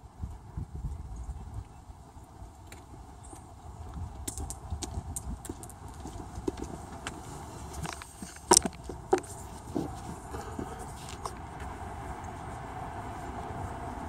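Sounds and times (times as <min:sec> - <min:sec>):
boots stepping on wet asphalt: 0:04.4 - 0:12.7.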